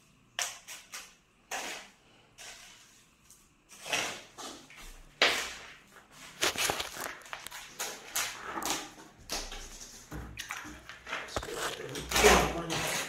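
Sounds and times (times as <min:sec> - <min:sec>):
trowel scraping mortar: 0:00.4 - 0:04.7, 0:11.2 - 0:13.0.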